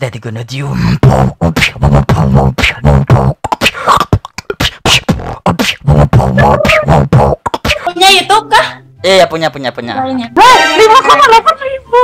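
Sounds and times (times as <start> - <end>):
man beatboxing: 0.6 - 7.9.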